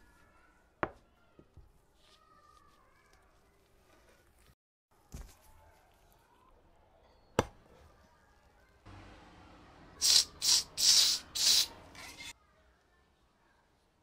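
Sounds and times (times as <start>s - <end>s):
knife chopping onto wooden board: 7.4s - 7.6s
short hisses: 10.0s - 12.3s.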